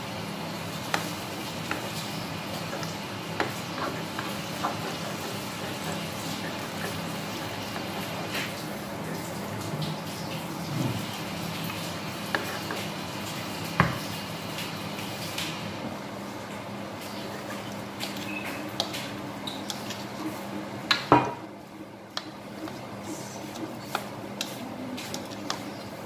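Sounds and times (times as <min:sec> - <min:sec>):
spatula scraping a pan: 0:01.7 - 0:08.2.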